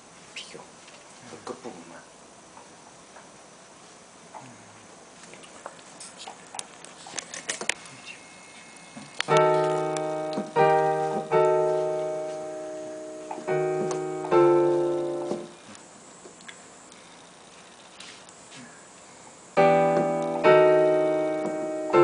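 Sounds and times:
digital piano chords: 9.3 - 15.7, 19.6 - 22.0.

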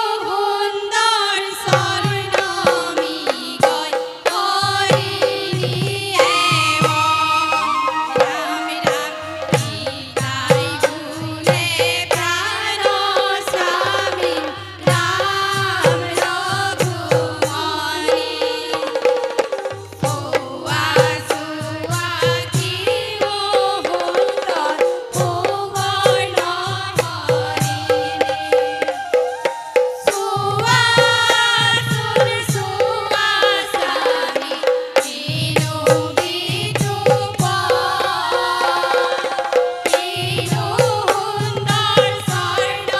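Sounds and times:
women's group singing: 0.0 - 42.9
hand drums fast beat: 1.6 - 42.9
bamboo flute: 6.2 - 10.6, 27.2 - 31.1, 38.2 - 41.3.

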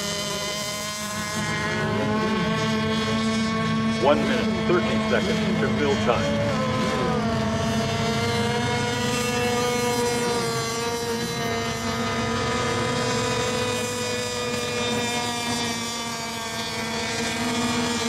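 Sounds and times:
model boat engines whining: 0.0 - 18.0.

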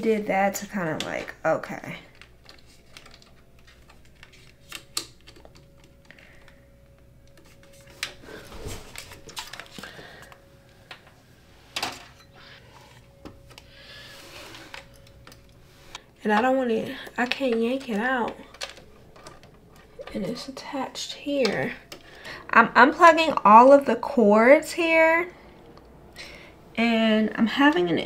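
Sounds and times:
clicks and taps of computer parts: 17.2 - 20.2.

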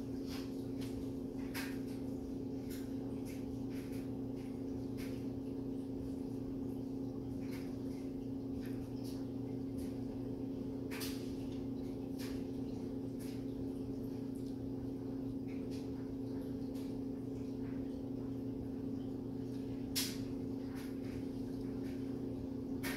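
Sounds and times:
low electrical hum: 0.0 - 22.9.

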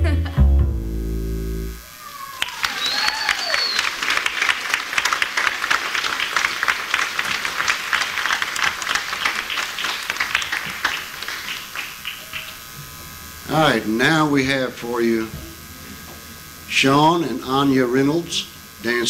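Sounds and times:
high whistle: 2.0 - 4.0
audience applauding: 2.1 - 12.6.

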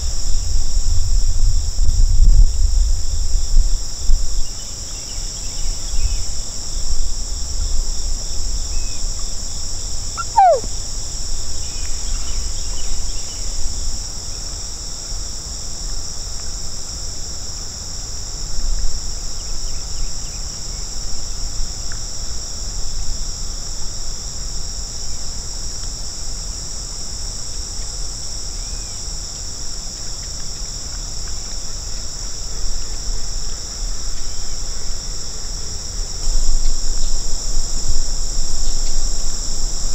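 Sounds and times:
insects chorus: 0.0 - 39.9
falling whistle: 10.2 - 10.7.

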